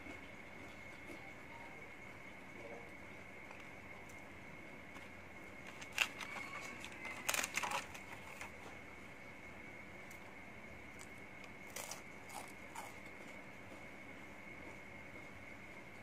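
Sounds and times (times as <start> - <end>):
plastic tray crinkling and clicking: 5.7 - 8.5.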